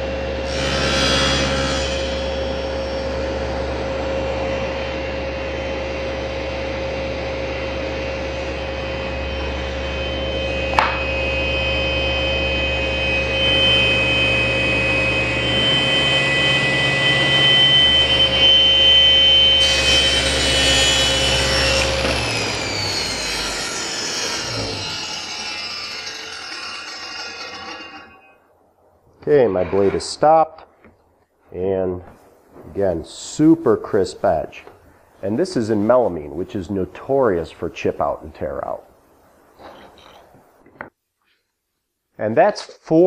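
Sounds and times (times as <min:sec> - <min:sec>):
table saw cutting board: 0:00.0 - 0:06.0, 0:07.4 - 0:28.4
saw blade winding down: 0:09.4 - 0:28.4.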